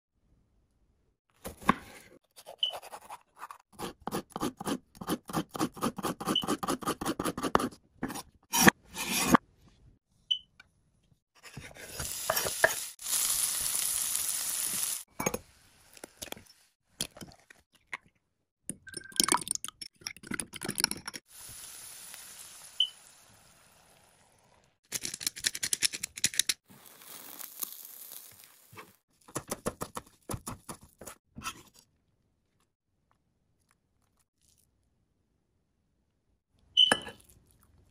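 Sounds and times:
omelet frying: 0:11.8 - 0:16.8, 0:26.7 - 0:29.6
vegetables sizzling in a frying pan: 0:12.0 - 0:16.0, 0:21.3 - 0:24.3, 0:26.8 - 0:28.8.

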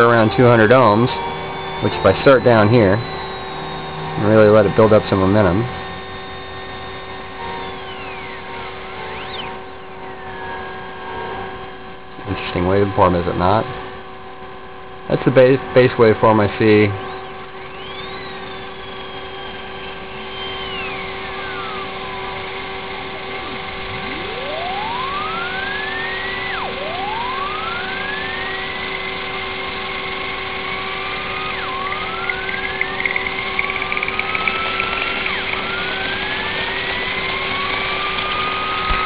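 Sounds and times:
gliding whining tones: 0:00.0 - 0:13.7, 0:16.3 - 0:39.0
electrical hum and hiss: 0:00.0 - 0:39.0
crackling ticks: 0:31.3 - 0:39.0.

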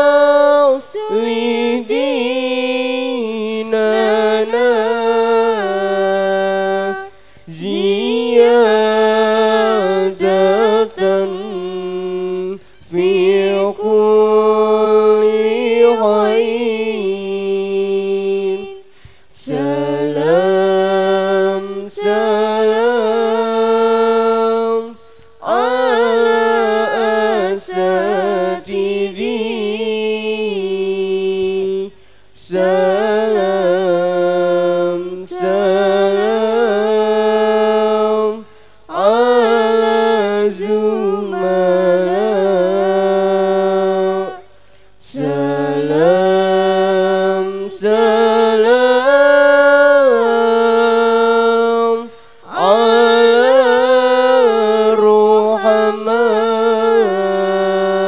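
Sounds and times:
girl chanting melodically: 0:00.7 - 0:02.8, 0:25.4 - 0:29.7, 0:38.9 - 0:42.8.

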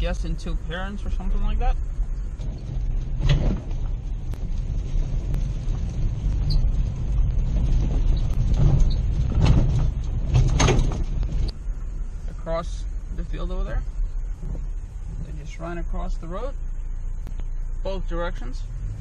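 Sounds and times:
truck rumbling on dirt track: 0:00.0 - 0:19.0.

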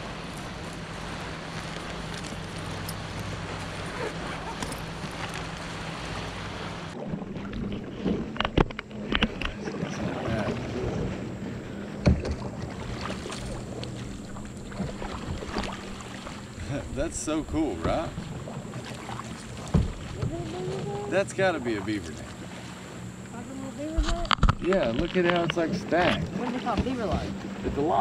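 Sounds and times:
wind buffeting microphone: 0:00.0 - 0:21.8
water lapping at hull: 0:00.0 - 0:28.0
knocks against boat: 0:12.0 - 0:15.9, 0:16.6 - 0:21.1, 0:23.8 - 0:28.0.

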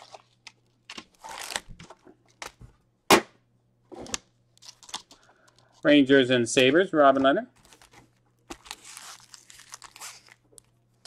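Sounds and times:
plastic wrapping crinkling: 0:00.0 - 0:02.0, 0:04.6 - 0:05.8, 0:07.6 - 0:11.0.

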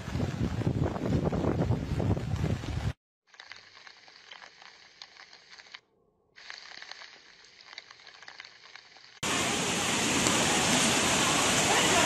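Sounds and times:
faint crackling and clicks: 0:03.3 - 0:05.8, 0:06.4 - 0:09.2
rush of water: 0:09.2 - 0:12.0.

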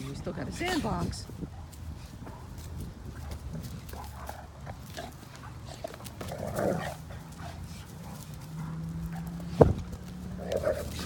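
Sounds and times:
dogs scuffling in dirt: 0:00.0 - 0:11.0
dog play vocalization: 0:03.1 - 0:11.0.

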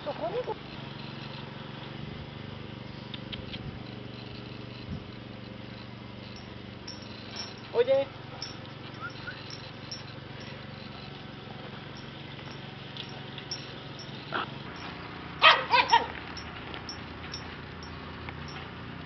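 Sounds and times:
steady low hum: 0:00.0 - 0:19.0
puppy yipping: 0:08.9 - 0:09.7, 0:15.4 - 0:16.2.

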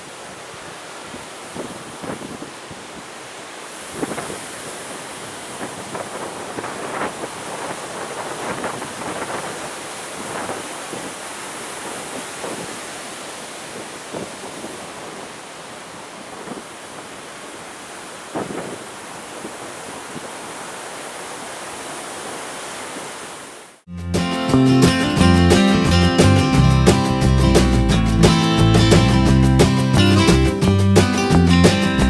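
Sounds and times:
strong wind gusting on microphone: 0:00.0 - 0:23.4
surf rushing: 0:00.0 - 0:32.0.

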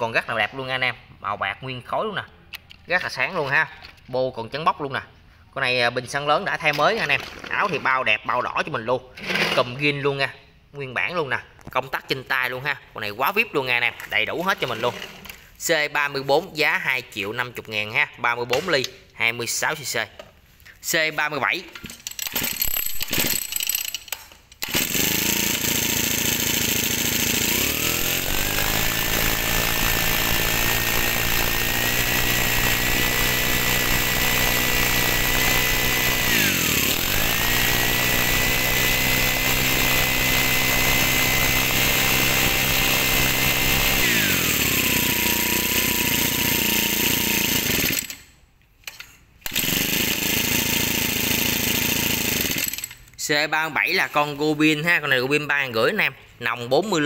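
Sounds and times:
brush cutter engine revving: 0:22.2 - 0:23.7, 0:24.6 - 0:48.2, 0:49.4 - 0:53.0.

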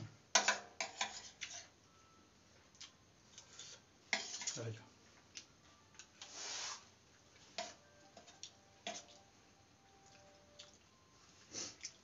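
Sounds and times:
soft scraping hiss: 0:06.0 - 0:09.2.

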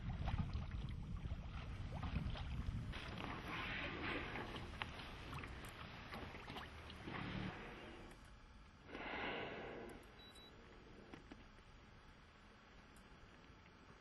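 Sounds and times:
water around a boat: 0:00.0 - 0:09.4
wind: 0:00.0 - 0:11.6.

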